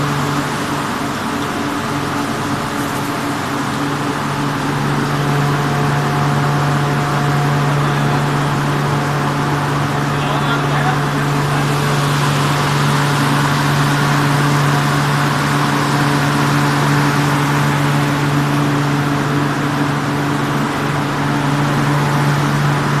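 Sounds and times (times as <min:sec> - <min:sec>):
cooling fans humming: 0:00.0 - 0:23.0.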